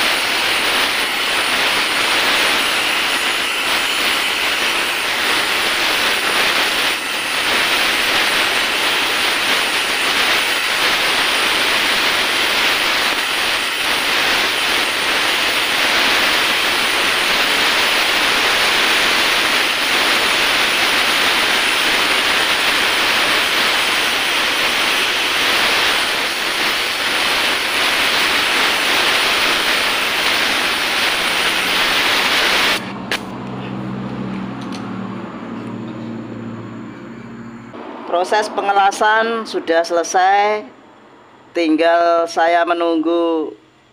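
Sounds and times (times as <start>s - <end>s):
welding torch flame hissing: 0.0s - 33.4s.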